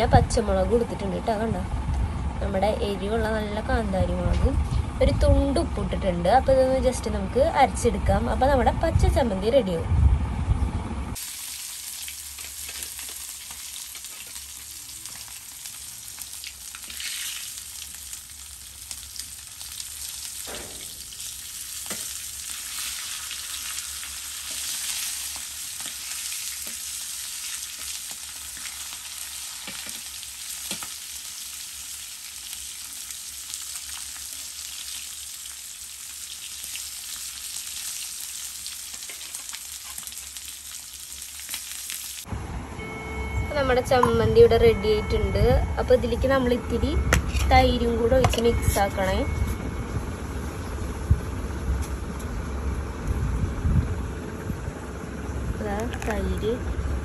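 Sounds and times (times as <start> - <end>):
chicken sizzling in oil: 11.2 - 42.3.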